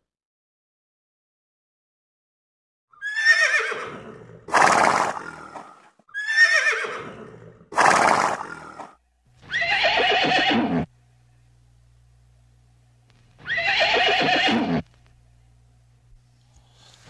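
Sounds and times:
horses neighing: 3.0s - 10.9s, 13.4s - 14.9s.

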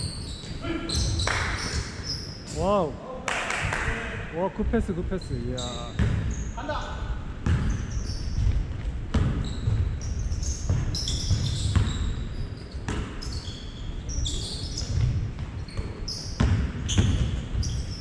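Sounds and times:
sneakers squeaking on wooden floor: 0.0s - 2.6s, 5.2s - 18.0s
basketball bouncing on wooden floor: 5.9s - 6.4s, 7.4s - 12.2s, 14.8s - 18.0s.

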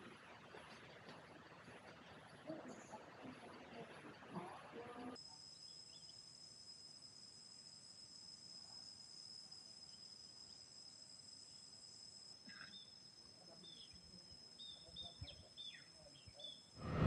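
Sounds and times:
insects droning: 5.1s - 17.0s.

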